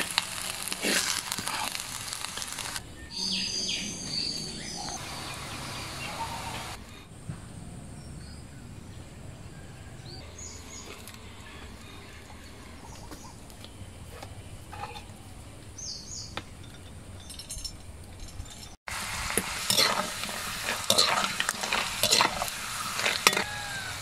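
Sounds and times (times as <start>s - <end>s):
rice sizzling in a pot: 0.0s - 3.5s, 4.1s - 6.8s, 18.9s - 24.0s
small birds chirping: 0.0s - 18.7s
outdoor background: 0.0s - 24.0s.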